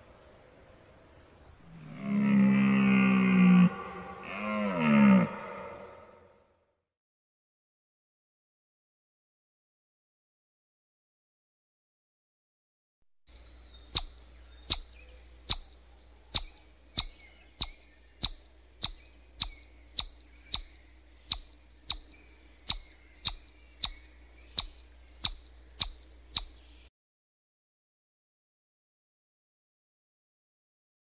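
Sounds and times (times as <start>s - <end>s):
chipmunk chip calls: 13.3s - 26.9s
faint low hum: 13.3s - 26.9s.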